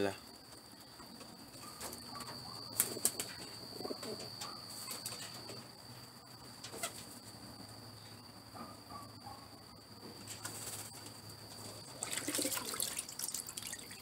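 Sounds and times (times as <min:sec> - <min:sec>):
steady high-pitched whine: 0:00.0 - 0:14.0
pigeons cooing: 0:01.5 - 0:04.7
water sloshing in bucket: 0:11.8 - 0:14.0.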